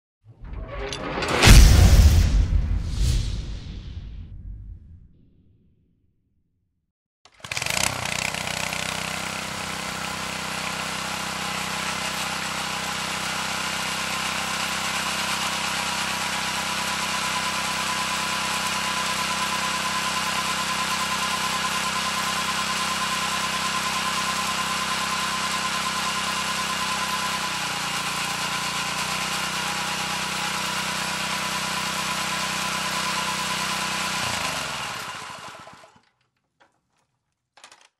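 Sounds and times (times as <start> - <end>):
lawn mower engine running: 7.3 - 36.0.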